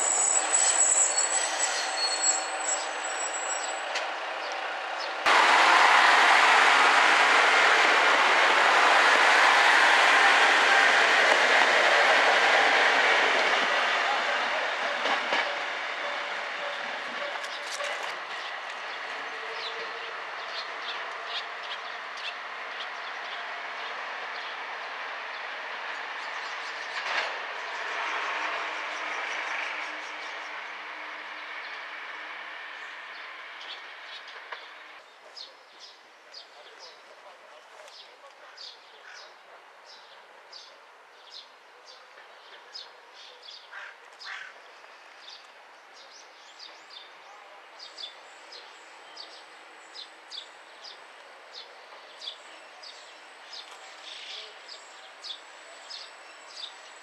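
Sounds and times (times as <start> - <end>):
diesel railcar engine running: 0.0 - 35.0
faint outdoor background noise: 0.0 - 57.0.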